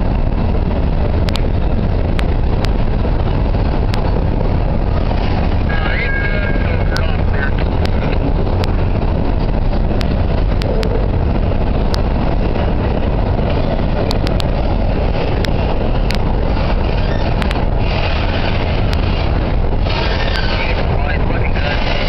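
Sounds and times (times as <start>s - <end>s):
freight train wheels rumbling: 0.0s - 22.0s
sharp clicks of rail wheels: 11.8s - 22.0s.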